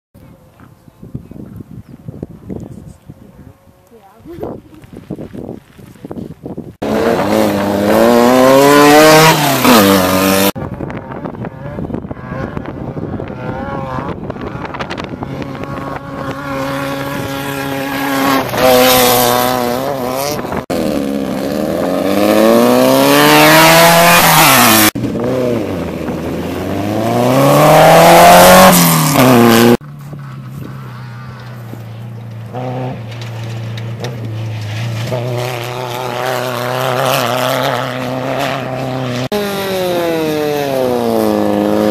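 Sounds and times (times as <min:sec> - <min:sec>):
buggy engines revving past: 0:06.8 - 0:41.9.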